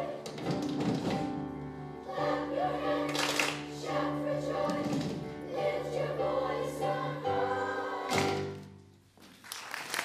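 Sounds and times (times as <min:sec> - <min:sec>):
children's choir singing: 0:00.0 - 0:08.8
piano: 0:00.0 - 0:09.5
audience applause: 0:09.4 - 0:10.0.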